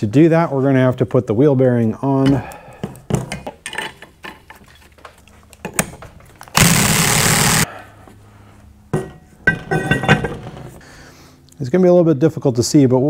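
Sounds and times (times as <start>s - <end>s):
power tool burst: 6.5s - 7.7s
metal parts clinking: 9.1s - 10.4s.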